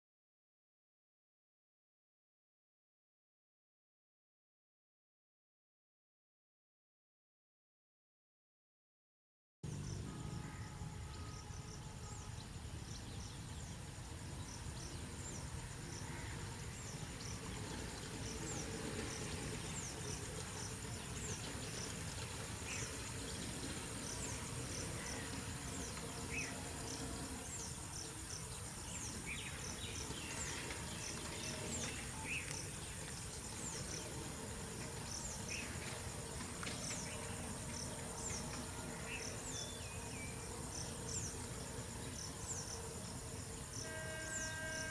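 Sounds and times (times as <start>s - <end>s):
insects droning: 9.7s - 44.9s.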